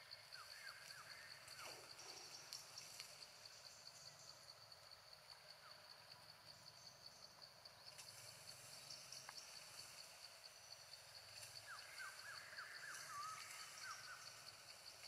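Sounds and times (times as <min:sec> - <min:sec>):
insect trilling: 0:00.3 - 0:04.7, 0:08.0 - 0:15.0.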